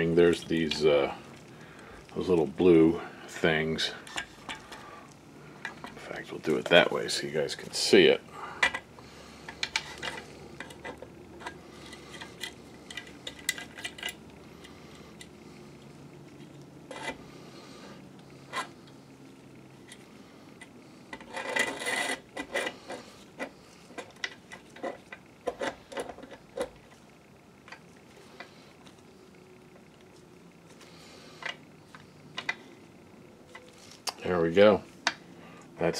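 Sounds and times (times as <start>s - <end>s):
plastic rubbing on metal: 19.8s - 29.2s.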